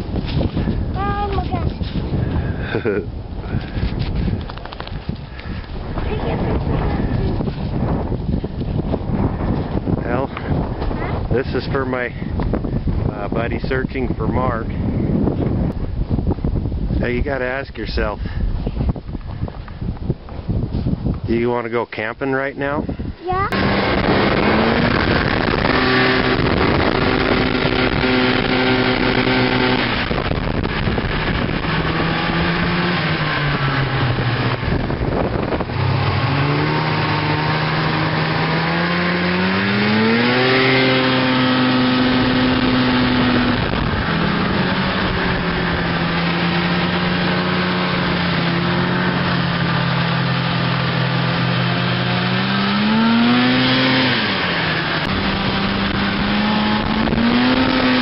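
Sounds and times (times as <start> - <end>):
snowmobile engine revving: 2.4 - 3.8, 5.5 - 7.9, 23.3 - 58.0.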